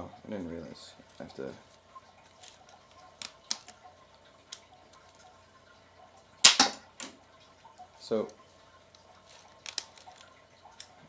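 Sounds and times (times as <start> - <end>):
toy gun firing snap: 6.4 - 6.8.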